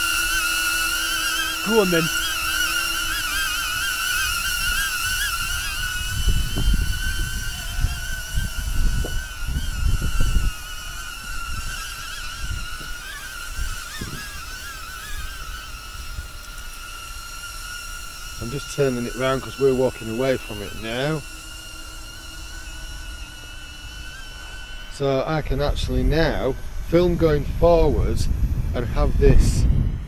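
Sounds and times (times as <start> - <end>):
drone propellers whining: 0.0 - 30.0
wind buffeting microphone: 3.7 - 16.5, 24.9 - 30.0.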